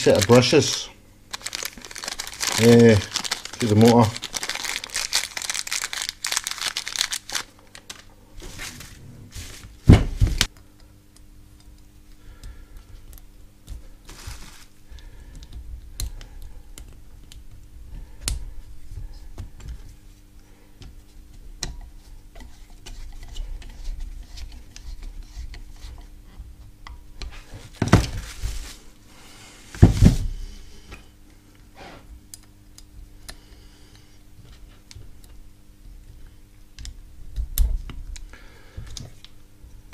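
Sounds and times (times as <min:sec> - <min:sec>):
plastic bag crinkling: 0:00.0 - 0:10.5, 0:14.1 - 0:14.8.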